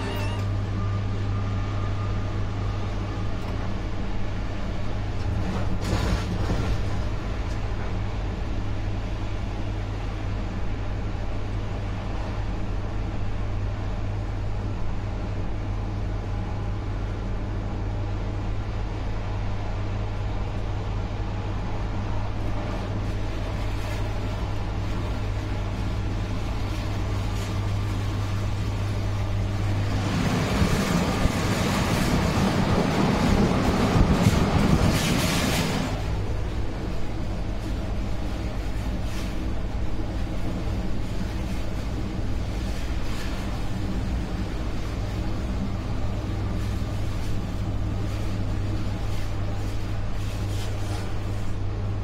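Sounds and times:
low electrical hum: 0:00.0 - 0:52.0
train running: 0:00.0 - 0:52.0
loud rushing noise: 0:27.6 - 0:37.7.

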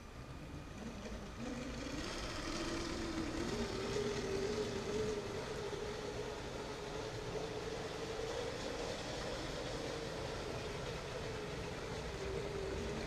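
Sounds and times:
wheels rolling on plastic track: 0:00.0 - 0:13.0
toy train motor whining: 0:00.7 - 0:13.0.

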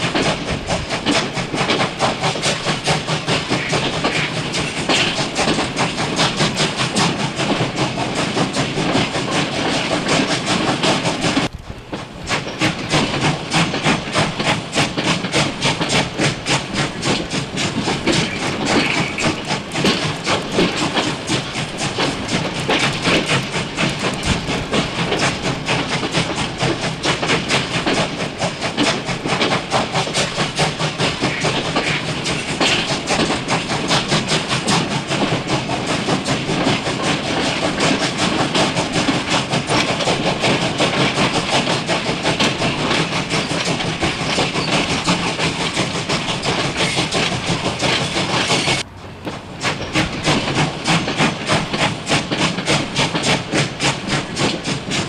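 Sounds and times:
rail clatter: 0:00.0 - 0:55.0
steam locomotive chugging: 0:00.0 - 0:55.0.

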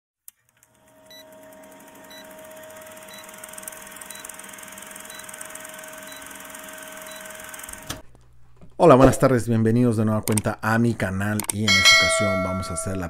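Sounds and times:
film projector clatter: 0:00.4 - 0:08.0.

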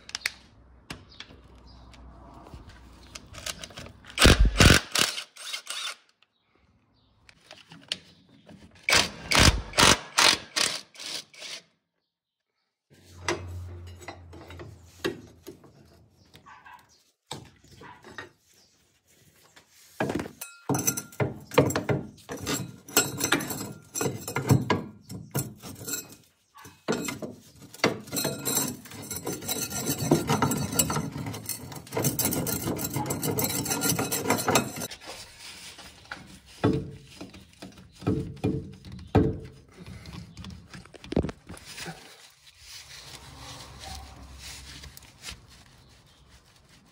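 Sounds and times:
metal clinks and knocks: 0:20.1 - 0:34.9.

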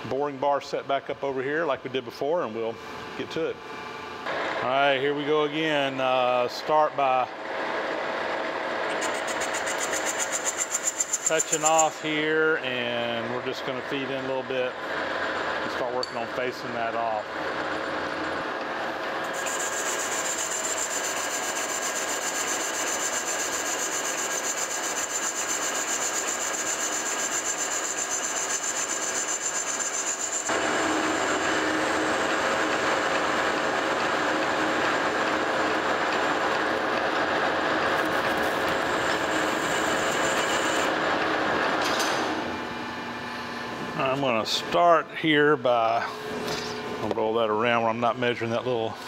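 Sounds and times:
metal lathe cutting whine: 0:07.5 - 0:16.1, 0:17.2 - 0:41.8.

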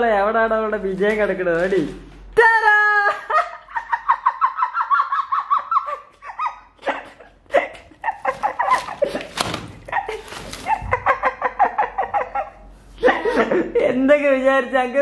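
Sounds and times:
high-pitched giggling laughter: 0:03.1 - 0:13.8
knocks and rustles: 0:08.2 - 0:11.2.

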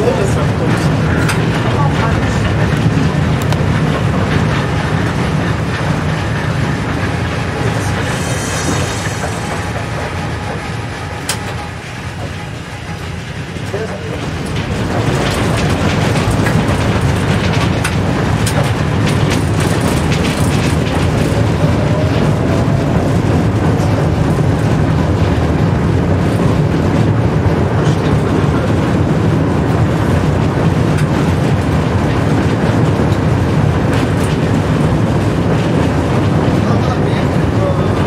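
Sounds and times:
track clicks and knocks: 0:00.0 - 0:36.6
tram wheels rumbling on rail: 0:00.0 - 0:38.0.

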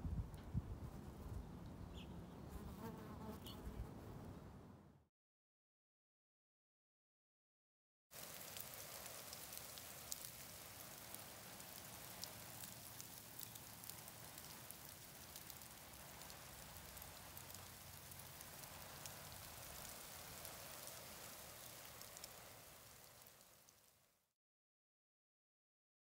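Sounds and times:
small ticks: 0:08.2 - 0:21.0
steady hiss: 0:08.2 - 0:24.2.

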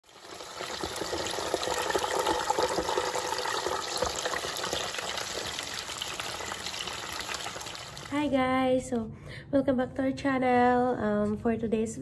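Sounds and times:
hot oil sizzling and crackling: 0:00.0 - 0:08.2.

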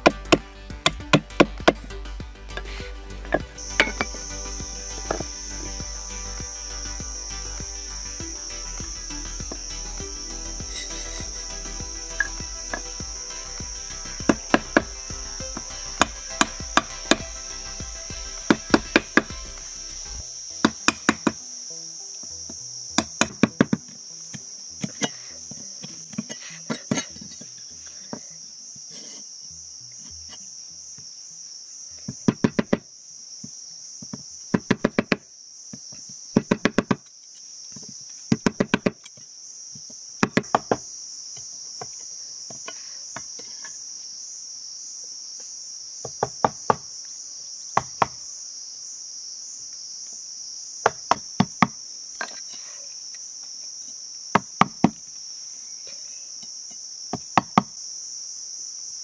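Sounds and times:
high-pitched insect drone: 0:00.0 - 0:32.8.

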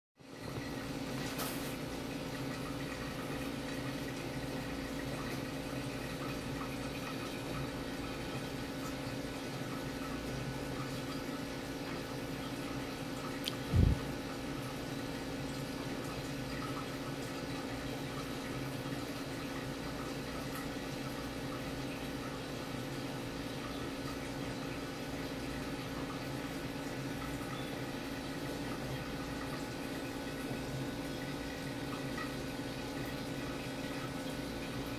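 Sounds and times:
aquarium water noise: 0:00.2 - 0:34.9
filter pump hum: 0:00.2 - 0:34.9
short low thump: 0:13.7 - 0:14.1.

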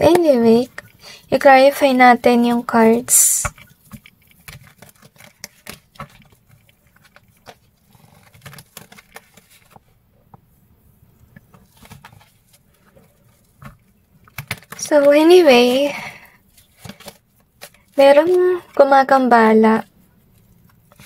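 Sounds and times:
cards being shuffled: 0:02.8 - 0:09.9, 0:11.3 - 0:15.7, 0:16.5 - 0:18.7.

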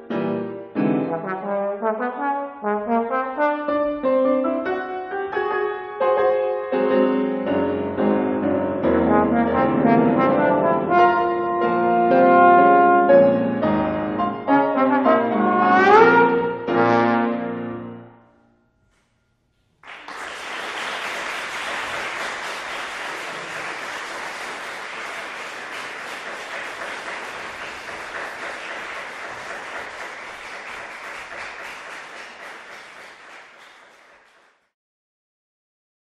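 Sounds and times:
trombone and piano note: 0:00.0 - 0:04.8, 0:08.8 - 0:18.2
audience applause: 0:19.8 - 0:34.7.

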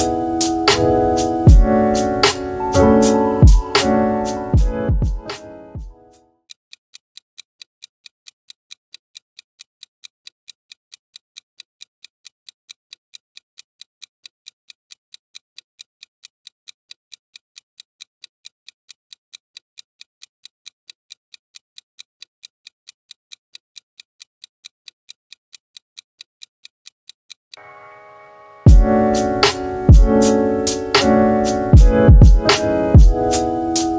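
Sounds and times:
rapid clock ticking: 0:00.0 - 0:05.9, 0:28.7 - 0:33.9.

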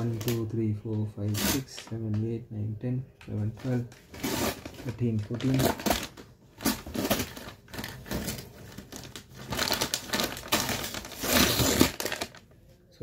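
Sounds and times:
paper wrapper tearing and crinkling: 0:00.0 - 0:00.5, 0:03.6 - 0:12.5.

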